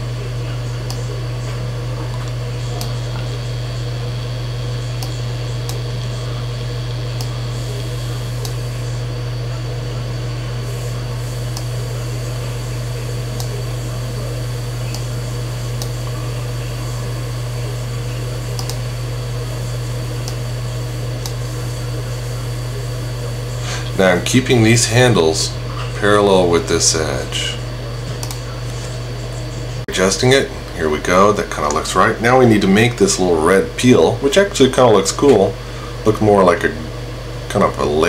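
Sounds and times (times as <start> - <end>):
steady low hum: 0.0 - 38.0
computer mouse clicks: 18.6 - 18.8, 28.2 - 28.4.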